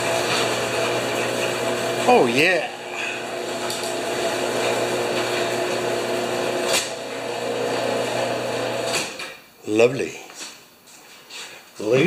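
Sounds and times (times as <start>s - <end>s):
garage door opener running: 0.0s - 9.4s.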